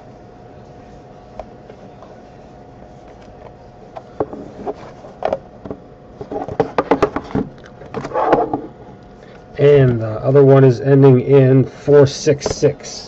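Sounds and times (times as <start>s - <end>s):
faint steady hum: 0.0s - 13.0s
boxes tapping together: 5.3s - 7.5s.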